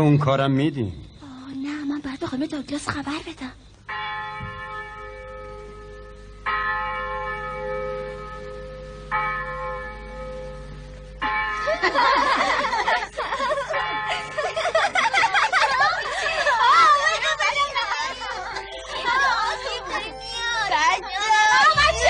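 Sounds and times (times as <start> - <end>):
church bell tolling: 3.9 - 16.0
children chattering and laughing: 11.6 - 22.0.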